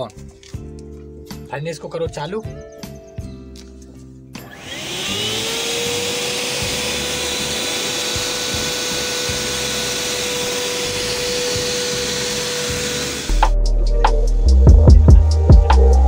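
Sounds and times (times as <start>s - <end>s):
air blower motor whine: 4.4s - 13.6s.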